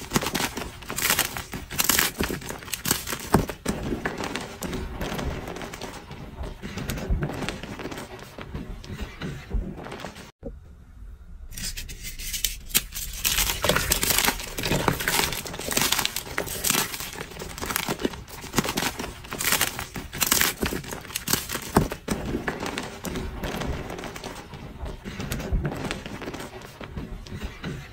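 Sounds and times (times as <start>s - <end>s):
chalk crunching by hand: 0.0s - 3.6s, 11.5s - 22.9s.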